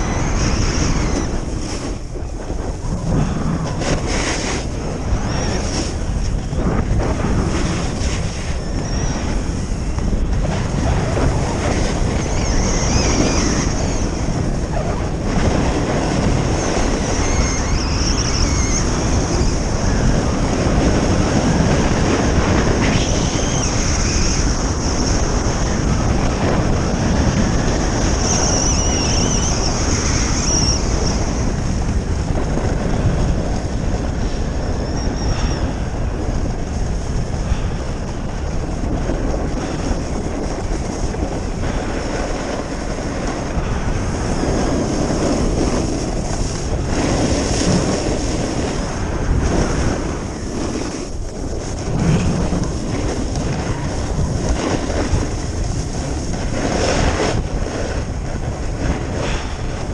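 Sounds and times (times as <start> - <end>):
skis sliding on packed snow: 0.0 - 8.6, 9.2 - 17.2, 35.6 - 59.9
wind buffeting microphone: 0.0 - 59.9.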